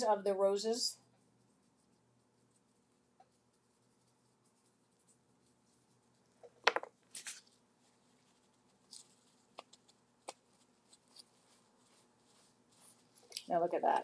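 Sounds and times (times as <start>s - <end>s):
paper towel crinkling: 7.0s - 14.0s.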